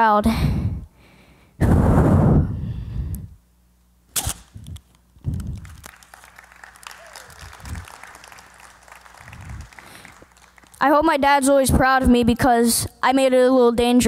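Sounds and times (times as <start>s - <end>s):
audience applauding: 5.3s - 10.8s.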